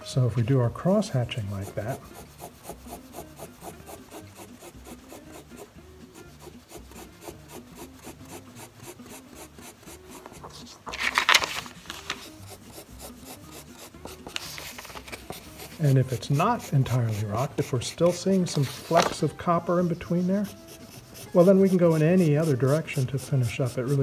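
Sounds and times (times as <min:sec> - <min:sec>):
marker scratching on paper: 0:01.3 - 0:10.8, 0:12.0 - 0:24.0
paper sliding on mat: 0:08.9 - 0:24.0.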